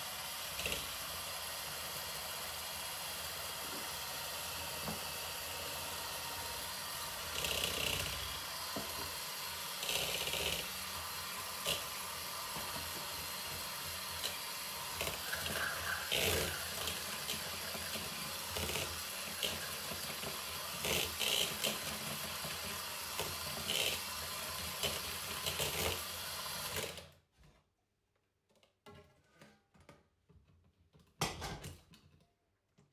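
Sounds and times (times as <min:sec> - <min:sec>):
electric hand mixer running: 0:00.0 - 0:27.0
beaters scraping bowl: 0:09.8 - 0:26.0.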